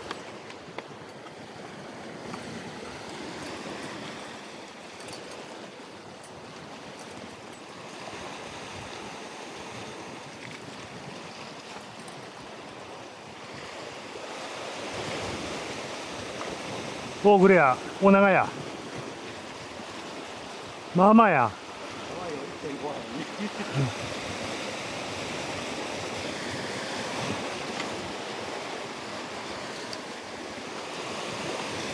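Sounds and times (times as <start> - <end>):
sea waves washing against rocks: 0.0 - 31.9
wind buffeting the microphone: 23.0 - 29.7.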